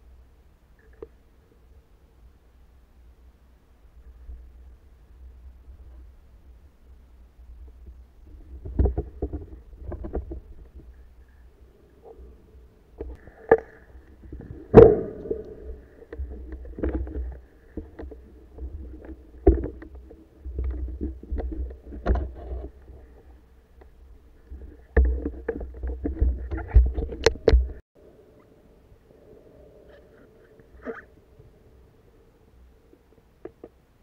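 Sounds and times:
underwater water rumble: 3.9 - 33.1
knocks and clicks underwater: 7.6 - 11.2, 13.0 - 27.8.

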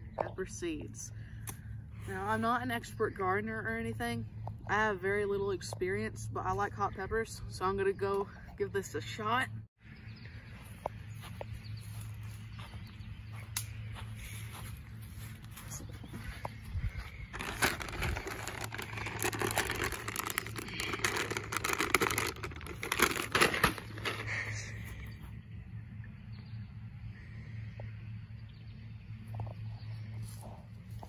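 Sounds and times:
plastic bag crinkling: 17.3 - 24.6.

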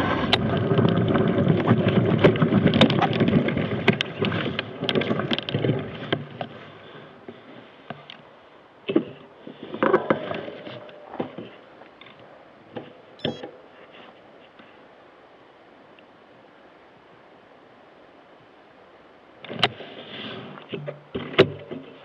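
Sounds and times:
mountain bike rattling over rocks: 0.0 - 8.1, 8.9 - 13.1
knocks and scrapes: 0.0 - 8.2, 8.9 - 14.8, 19.5 - 22.0
brief squeak: 13.2 - 13.5.

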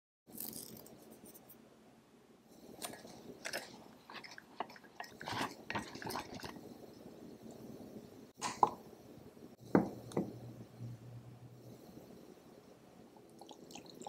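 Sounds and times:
whisk scraping in ceramic mug: 2.9 - 6.6.

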